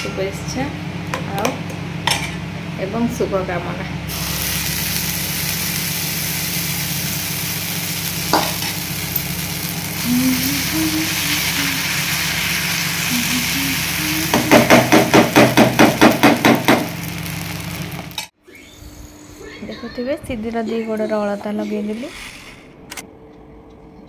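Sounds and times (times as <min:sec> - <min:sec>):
batter sizzling on a hot pan: 0:04.1 - 0:18.2.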